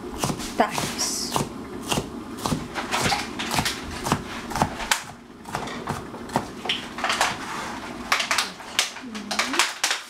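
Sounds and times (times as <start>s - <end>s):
knife chopping on cutting board: 0.2s - 6.6s.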